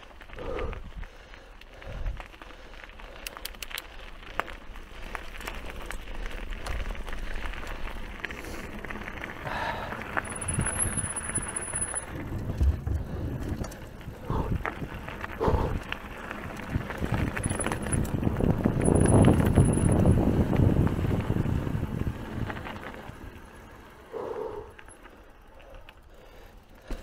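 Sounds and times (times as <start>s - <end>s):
bike rattling over bumps: 0.0s - 27.0s
bike tyres rumbling on trail: 0.0s - 27.0s.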